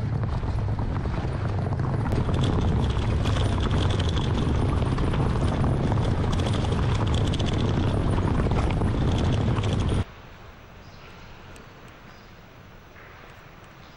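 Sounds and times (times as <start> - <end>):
vehicle low rumble: 0.0 - 10.1.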